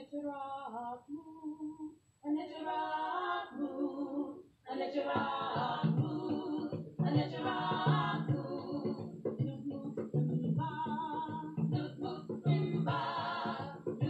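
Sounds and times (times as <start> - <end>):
lower voice part singing: 0.0 - 14.0
unaccompanied singing: 0.0 - 14.0.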